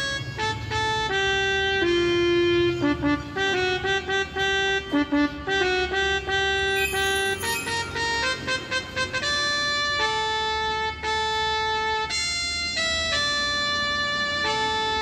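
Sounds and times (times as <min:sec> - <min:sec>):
electronic keyboard melody: 0:01.8 - 0:13.4.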